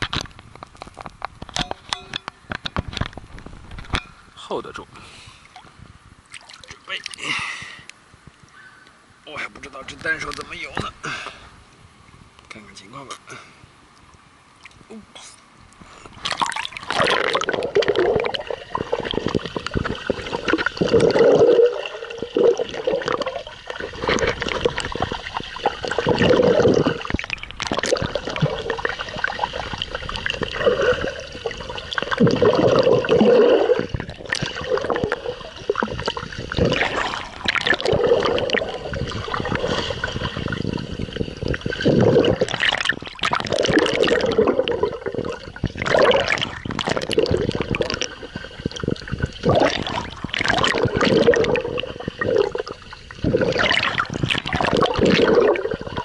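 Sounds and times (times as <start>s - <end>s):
water churning against camera housing: 16.1s - 56.0s.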